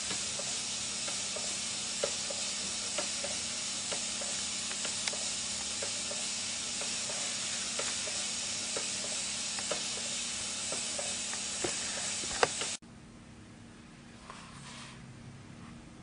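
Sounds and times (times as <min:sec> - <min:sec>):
model steam engine hissing: 0:00.0 - 0:12.8.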